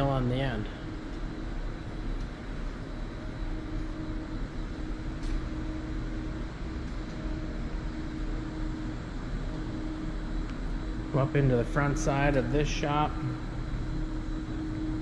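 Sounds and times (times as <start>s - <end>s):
constant mid-pitched tone: 0.0s - 15.0s
machine shop hum and rumble: 0.0s - 15.0s.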